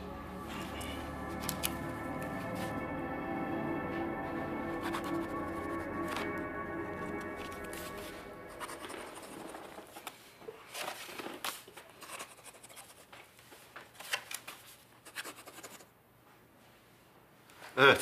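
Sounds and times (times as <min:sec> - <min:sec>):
soft background music: 0:00.0 - 0:10.0.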